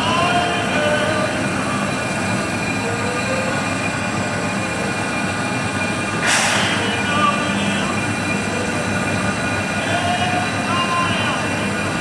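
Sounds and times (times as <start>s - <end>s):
steam locomotive rumbling: 0.0s - 12.0s
steam hiss burst: 6.2s - 7.0s.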